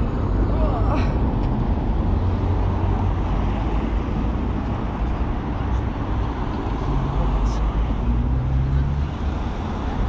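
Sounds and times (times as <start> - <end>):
city traffic noise: 0.0 - 10.0.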